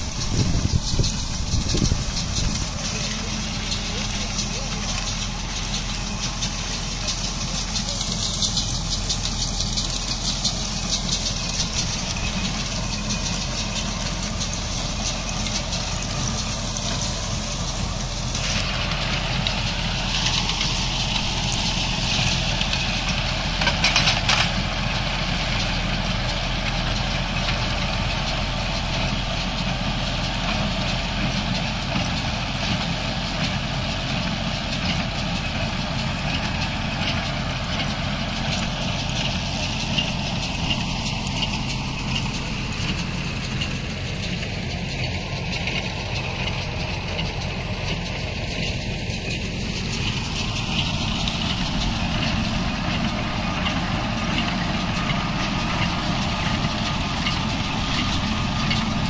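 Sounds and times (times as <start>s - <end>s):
hay baler working: 0.0s - 59.0s
machinery clatter: 0.0s - 59.0s
tractor engine running: 0.0s - 59.0s.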